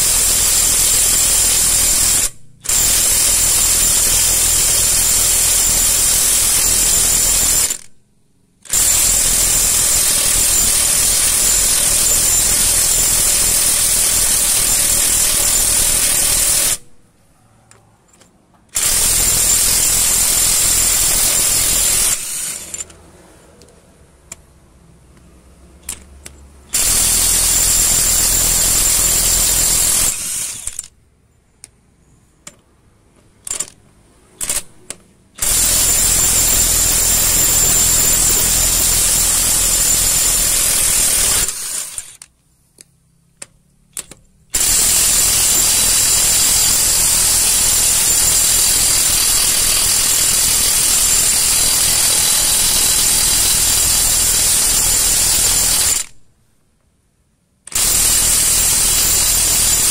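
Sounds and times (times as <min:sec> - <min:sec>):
impact wrench rattling: 0:25.8 - 0:31.0, 0:33.2 - 0:42.3.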